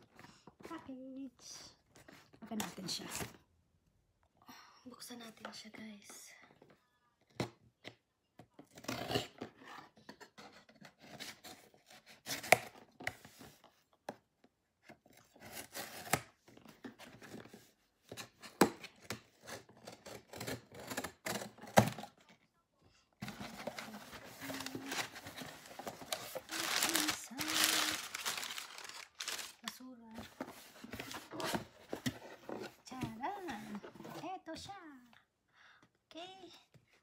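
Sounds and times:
packing tape being cut and ripped: 8.7 - 9.6, 11.0 - 12.8, 15.4 - 16.3, 19.4 - 22.1, 23.3 - 29.8
packing paper crumpling: 23.2 - 29.8.

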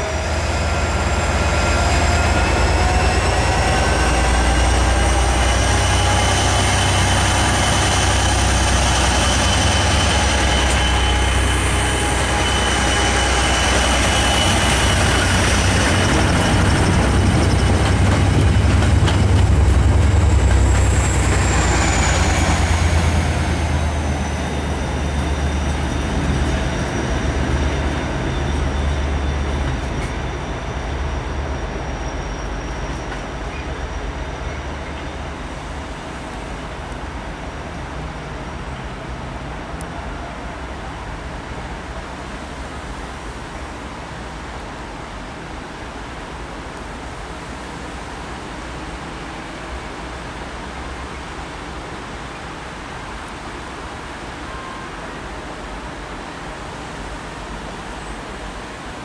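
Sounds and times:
train wheels rolling: 0.0 - 35.3
diesel locomotive engine drone: 0.0 - 59.0.

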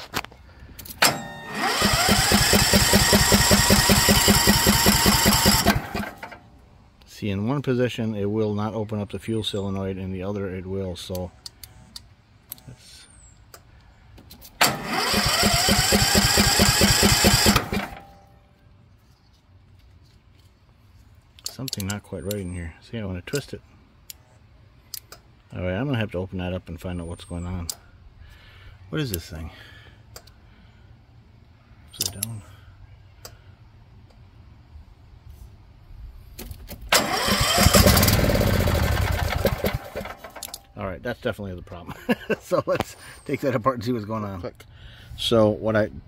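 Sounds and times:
lawn tractor engine cranking: 0.0 - 6.5, 14.5 - 18.3, 36.8 - 40.8.

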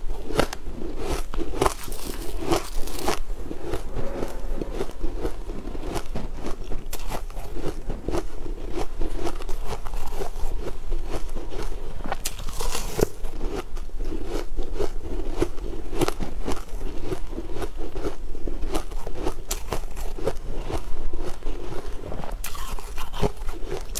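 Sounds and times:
crunching of frozen blocks: 0.1 - 3.2, 6.4 - 13.6.

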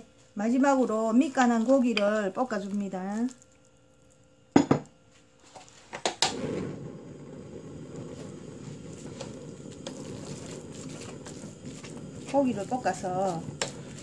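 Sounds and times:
meat frying and stirring: 0.0 - 4.3, 7.6 - 14.0.

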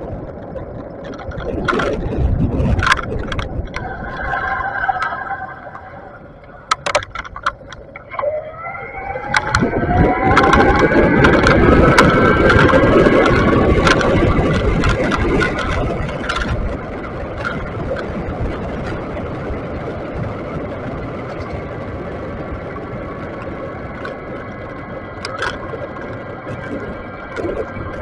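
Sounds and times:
rising whine: 0.0 - 18.3
passing traffic: 0.0 - 28.0
wind rush: 0.0 - 28.0.

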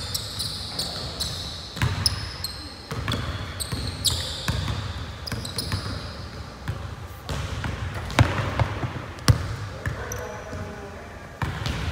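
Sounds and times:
sneakers squeaking on court: 0.0 - 10.7
basketball bouncing on hardwood floor: 2.9 - 3.9, 6.6 - 9.6.

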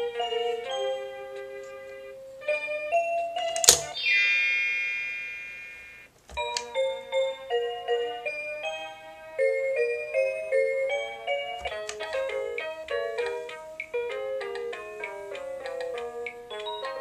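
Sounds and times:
toy phone chime: 2.4 - 13.3, 16.5 - 17.0
toy click: 3.5 - 4.1, 6.3 - 6.8, 11.6 - 16.9
electronic tune of stepped notes: 3.9 - 6.8.

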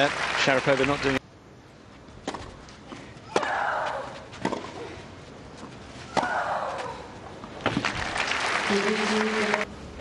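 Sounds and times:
racket hitting tennis ball: 3.3 - 4.9.

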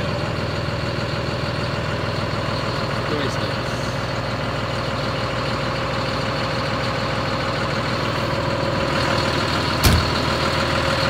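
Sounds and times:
diesel engine idling: 0.0 - 11.0
sharp thump: 9.8 - 10.2.

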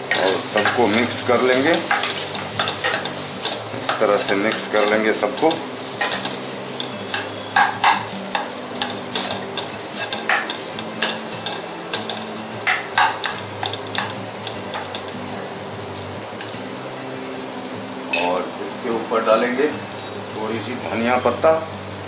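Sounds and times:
spatula scraping a pan: 0.0 - 15.2
potato sizzling in a pan: 0.0 - 22.0.

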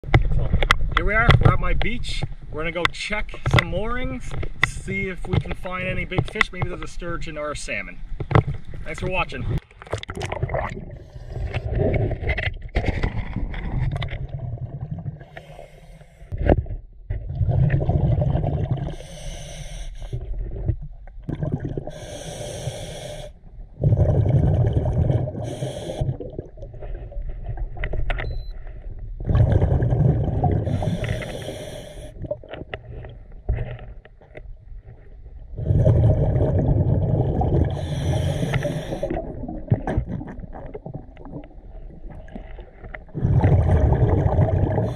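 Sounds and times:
bubbling exhaled air: 10.0 - 16.6, 17.2 - 27.8, 28.4 - 33.4, 35.5 - 44.9
regulator hissing inhalation: 15.2 - 16.3, 18.9 - 20.2, 21.9 - 23.4, 25.4 - 26.2, 30.6 - 32.2, 37.7 - 39.2.

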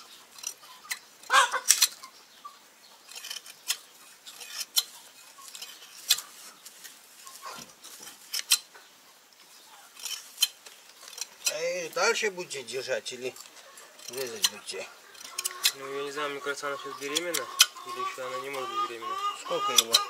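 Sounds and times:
sheep shears snipping: 3.0 - 8.7, 9.9 - 12.2, 13.0 - 20.0.

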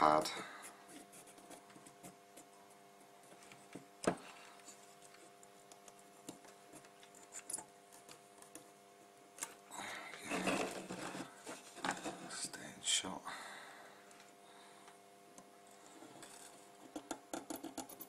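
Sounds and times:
faint steady hum: 0.0 - 18.0
braid scraping and rubbing: 10.2 - 12.5.

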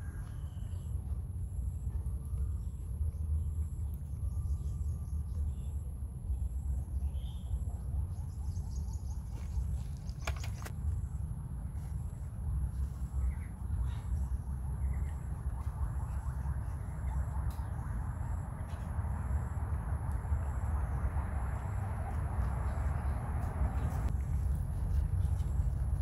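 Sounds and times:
steady low rumble: 0.0 - 26.0
faint bird chirps: 1.7 - 10.6.

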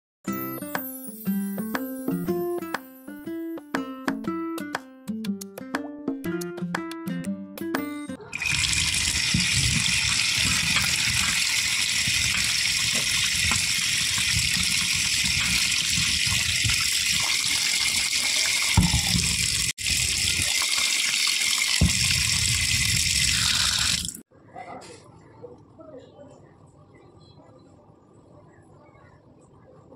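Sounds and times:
running water pouring: 8.3 - 24.2.

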